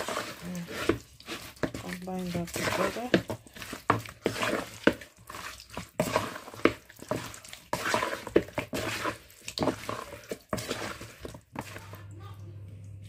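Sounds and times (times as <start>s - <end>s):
spoon stirring wet marinade in bowl: 0.0s - 13.0s.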